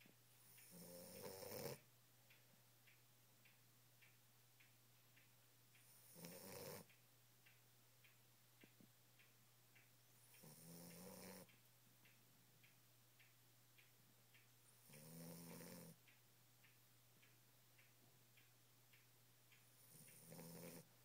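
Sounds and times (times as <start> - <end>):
faint ticking: 0.0 - 21.0
puppy snoring: 0.5 - 1.9, 5.9 - 6.9, 10.3 - 11.5, 14.8 - 16.0, 19.8 - 20.9.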